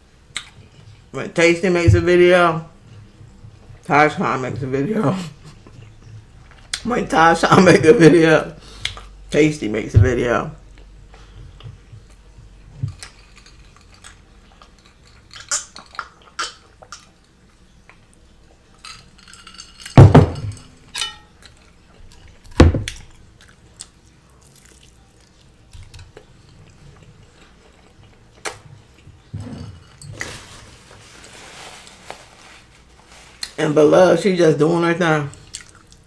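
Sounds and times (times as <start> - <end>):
heavy thumps: 20.0 - 20.7.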